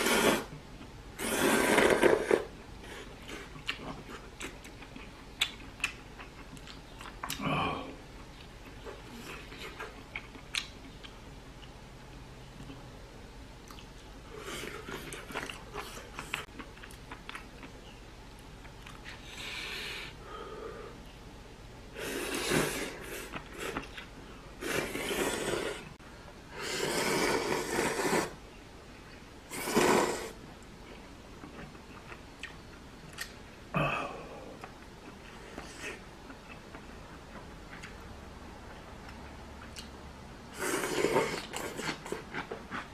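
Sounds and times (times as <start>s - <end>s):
loud noodle slurps: 0.0s - 0.5s, 1.2s - 2.5s, 22.0s - 23.8s, 24.6s - 25.9s, 26.6s - 28.4s, 29.5s - 30.4s, 40.5s - 42.1s
person chewing: 1.2s - 7.5s, 8.3s - 11.8s, 13.6s - 17.8s, 22.0s - 25.9s, 31.4s - 33.4s, 40.6s - 42.9s.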